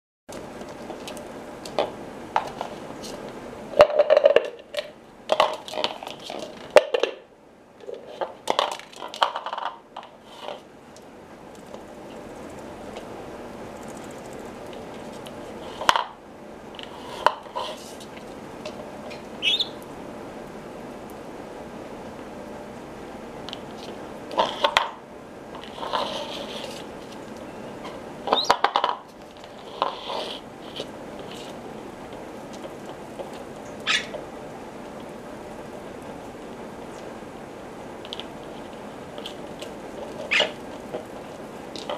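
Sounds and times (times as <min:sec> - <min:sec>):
plastic bowl clattering on tile: 0:03.8 - 0:04.6
bowl scraping on floor: 0:07.8 - 0:10.7, 0:16.8 - 0:19.3, 0:23.7 - 0:31.6.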